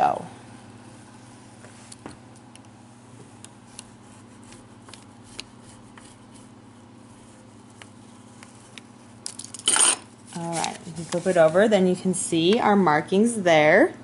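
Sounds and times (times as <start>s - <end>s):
low steady hum: 0.0s - 14.0s
paper rustling: 10.2s - 11.7s.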